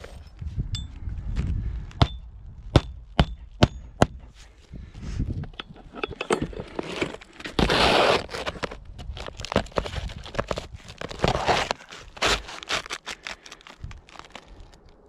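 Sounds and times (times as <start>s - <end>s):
shingle rustling: 5.3s - 15.0s.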